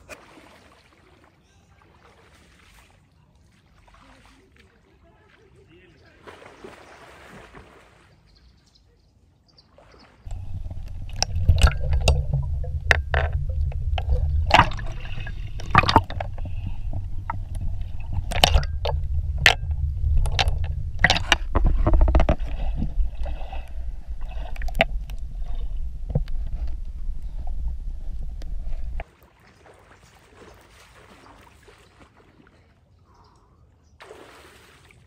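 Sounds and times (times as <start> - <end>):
water splashing against camera: 10.2 - 32.7
muffled underwater rumble: 10.3 - 29.0.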